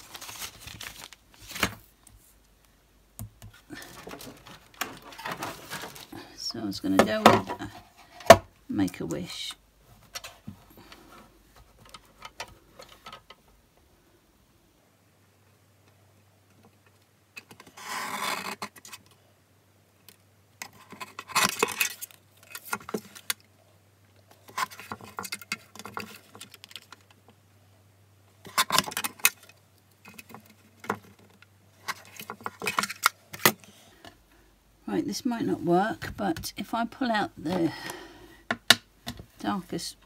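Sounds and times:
paper being shifted: 0.0 - 1.9.

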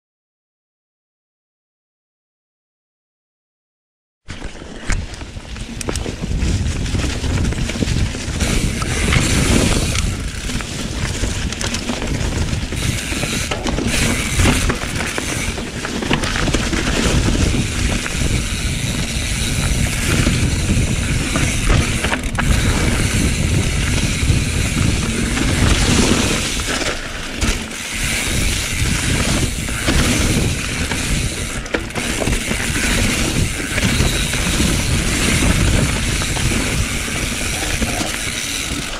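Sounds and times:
bike rattling over bumps: 4.3 - 38.9
tyres rolling over dry leaves: 4.3 - 38.9
wind rumble on microphone: 4.8 - 38.9.

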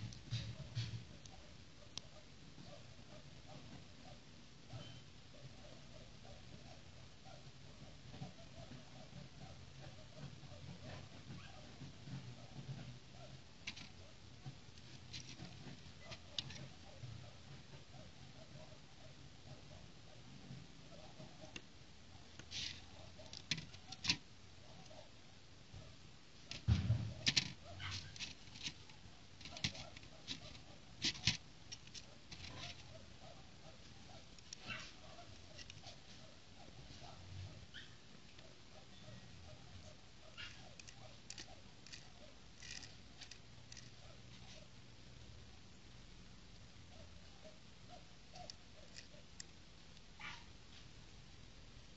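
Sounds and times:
short faint squeak: 4.7 - 5.1
dull low thump: 26.7 - 27.3.

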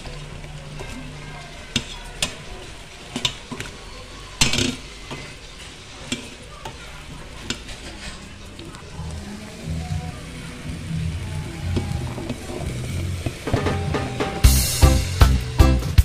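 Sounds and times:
food sizzling in a pot: 0.0 - 16.0
utensil scraping against pot: 4.4 - 9.9.

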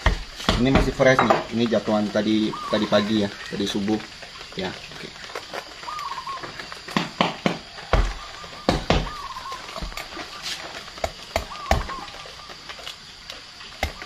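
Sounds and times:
knife chopping into spiny husk: 11.0 - 12.1.

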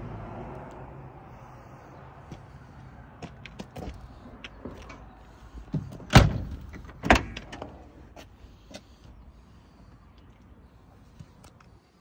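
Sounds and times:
car door clunks: 5.8 - 7.6
metal door clicks and rattles: 6.0 - 7.7.

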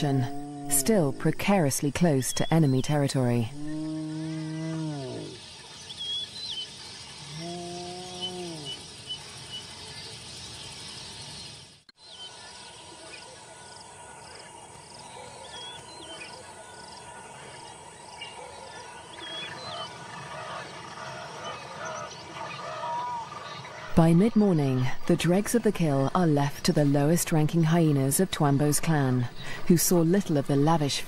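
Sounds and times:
drawn-out animal call: 0.0 - 1.5
faint insect buzz: 6.7 - 10.5.

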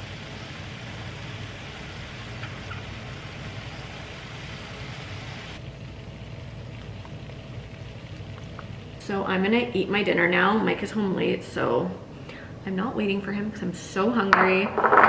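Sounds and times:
kitchen hiss: 0.0 - 5.6.

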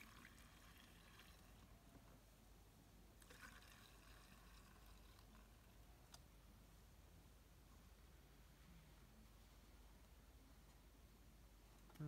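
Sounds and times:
fuel trickling through funnel: 0.0 - 1.8, 3.2 - 5.7.

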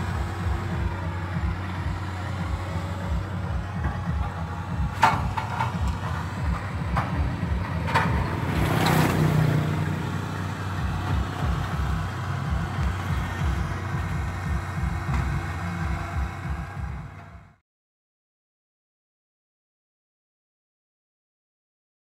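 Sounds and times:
diesel truck engine idling: 0.0 - 17.6.

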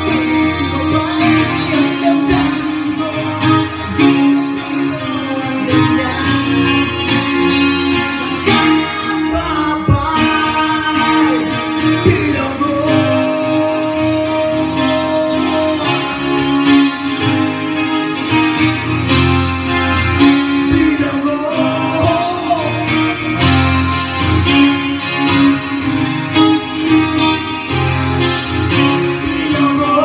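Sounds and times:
man singing: 0.0 - 17.1, 20.2 - 23.7, 28.8 - 30.0
acoustic guitar strumming: 0.0 - 30.0.

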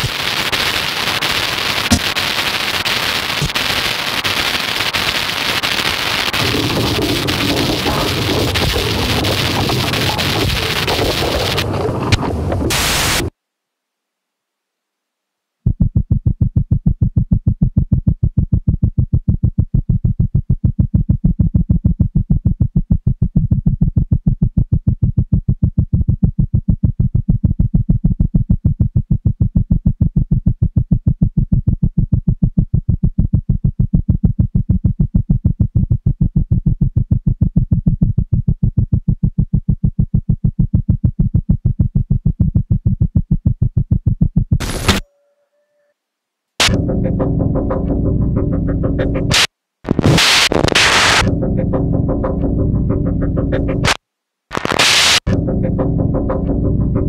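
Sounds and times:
loud burst of noise: 0.0 - 13.3, 44.6 - 45.0, 46.6 - 46.9, 49.3 - 51.4, 53.8 - 55.4
pulsing low electronic tone: 46.6 - 54.0, 55.3 - 57.0.

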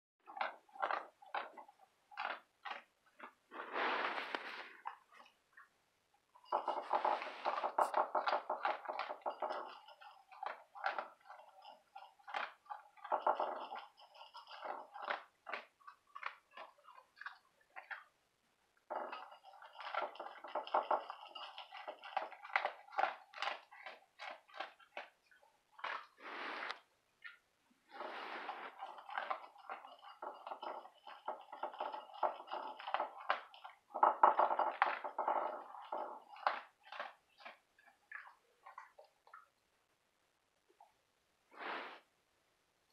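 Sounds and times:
dog crunching dry kibble: 0.2 - 5.4, 21.5 - 26.9, 32.8 - 39.1
kibble rattling in a bowl: 0.2 - 5.4, 6.3 - 18.1, 18.8 - 26.2, 27.9 - 39.5.

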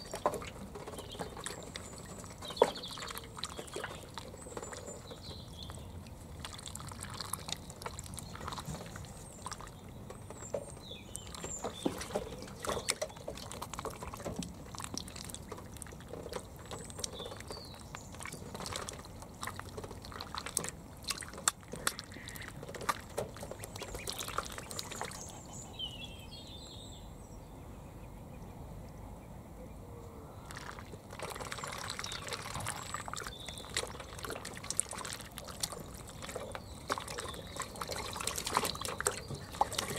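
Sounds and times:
ducklings splashing in water: 0.0 - 27.1, 30.3 - 39.9
ducklings peeping: 0.0 - 39.9.

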